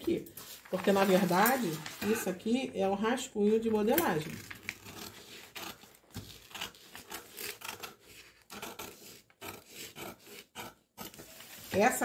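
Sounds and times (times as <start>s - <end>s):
paper rustling: 0.1s - 2.4s
scissors snipping paper: 3.8s - 11.8s.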